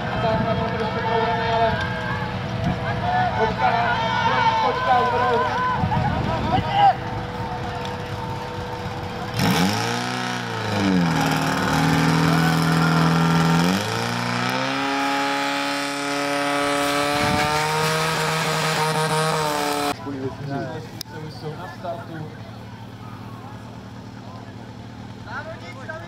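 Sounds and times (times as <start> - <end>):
pump engine revving: 7.2 - 20.0.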